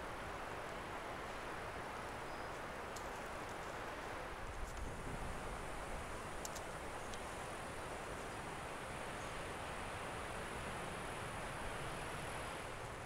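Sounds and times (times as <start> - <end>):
outdoor background hiss: 0.0 - 13.0
faint light ticks: 2.0 - 4.9, 6.4 - 7.3.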